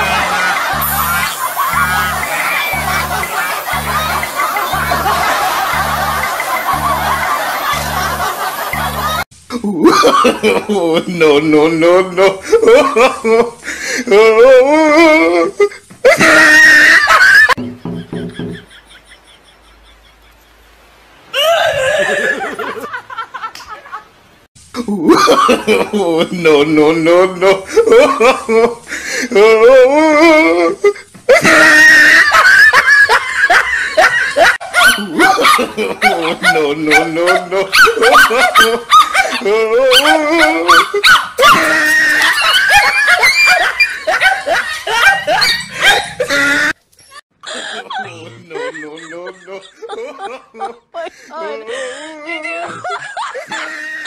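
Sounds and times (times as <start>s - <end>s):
person laughing: 0.0s - 20.4s, 21.4s - 24.0s, 24.8s - 46.8s, 47.4s - 54.0s
small dogs barking and yapping: 34.6s - 47.2s.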